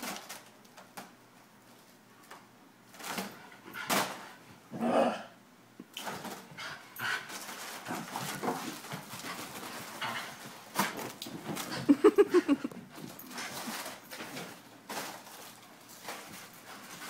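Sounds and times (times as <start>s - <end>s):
foil balloon crinkling: 0.0s - 3.3s, 13.0s - 17.0s.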